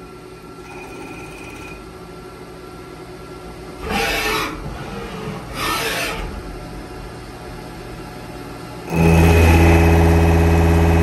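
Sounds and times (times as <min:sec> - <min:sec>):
milling machine hum: 0:00.0 - 0:11.0
loud cutting noise bursts: 0:08.9 - 0:11.0.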